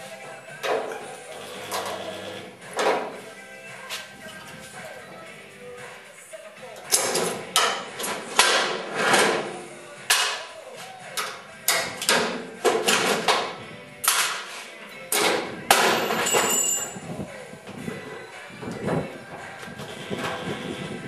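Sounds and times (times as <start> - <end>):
metal clanking on sheet metal: 6.9 - 10.5, 11.7 - 14.5, 15.1 - 17.0.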